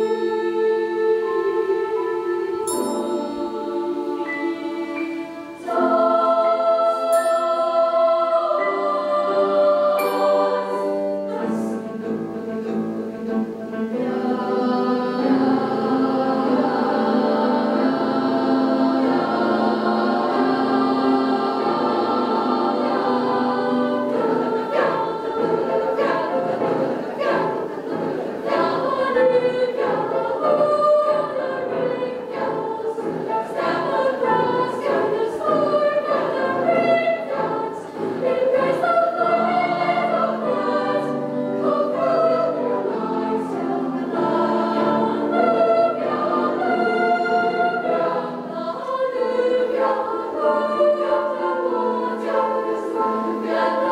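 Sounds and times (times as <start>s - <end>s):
choir singing: 0.0s - 53.9s.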